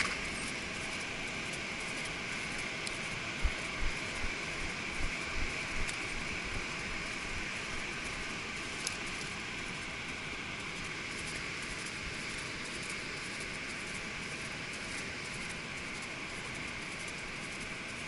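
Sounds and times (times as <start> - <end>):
wind buffeting microphone: 2.6 - 8.0.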